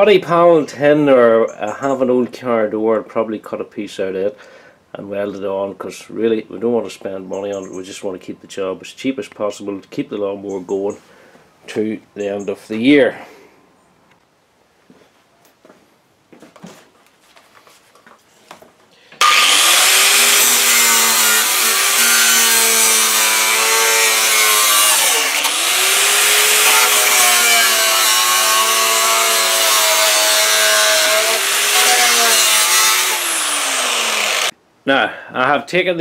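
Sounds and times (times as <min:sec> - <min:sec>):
angle grinder cutting metal: 0:19.2 - 0:34.5.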